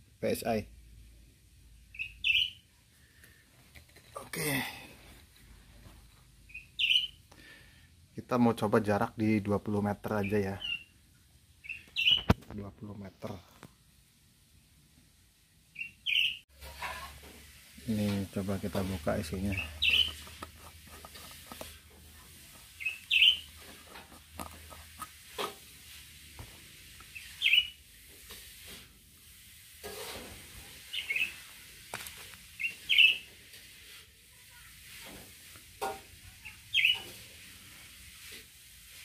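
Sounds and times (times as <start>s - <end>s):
bird chirping: 1.9s - 2.7s, 6.5s - 7.2s, 10.1s - 11.0s, 11.6s - 12.4s, 15.7s - 16.4s, 19.3s - 23.7s, 27.0s - 27.8s, 30.9s - 31.4s, 32.6s - 33.2s, 36.4s - 37.1s.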